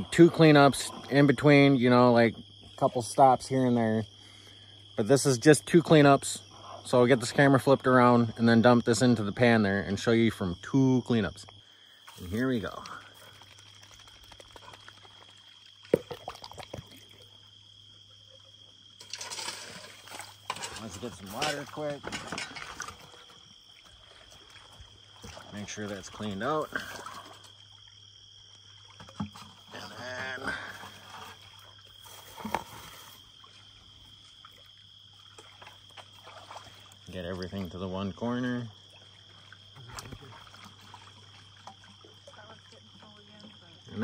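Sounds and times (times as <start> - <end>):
water gurgling and splashing: 12.2 - 17.5, 19.3 - 44.0.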